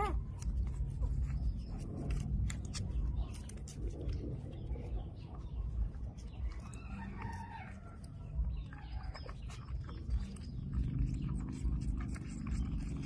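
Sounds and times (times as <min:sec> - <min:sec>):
rooster crowing: 0:06.7 - 0:08.2.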